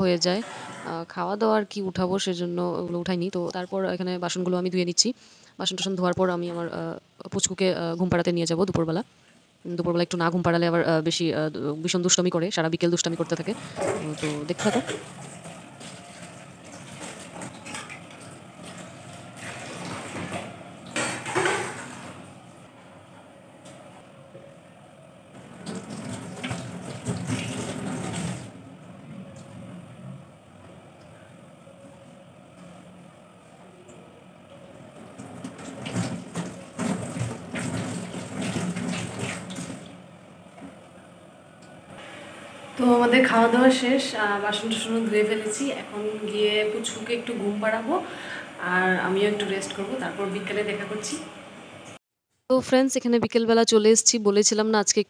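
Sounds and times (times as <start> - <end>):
water splashing into metal sink: 13.4 - 22.2, 25.4 - 28.6, 35.1 - 40.1
tap water running into sink: 25.4 - 28.6, 35.0 - 40.0.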